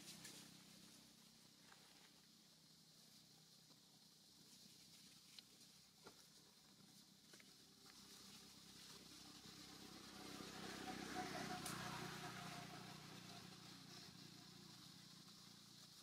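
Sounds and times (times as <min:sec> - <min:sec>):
faint vehicle passing: 0:07.5 - 0:16.0.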